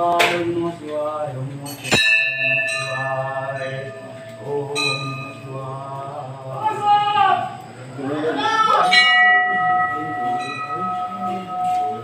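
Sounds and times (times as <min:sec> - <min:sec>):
temple bell ringing: 0:01.7 - 0:05.8, 0:08.8 - 0:12.0.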